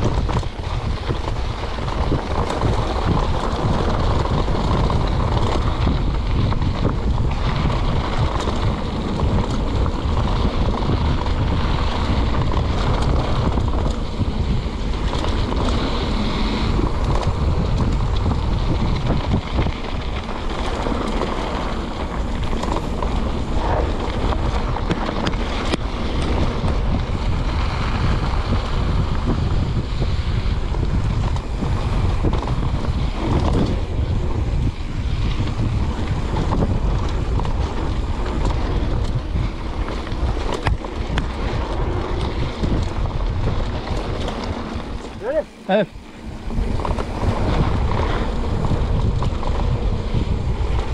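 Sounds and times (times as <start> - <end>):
bike tyres rattling: 0.0 - 50.9
wind rushing over microphone: 0.0 - 50.9.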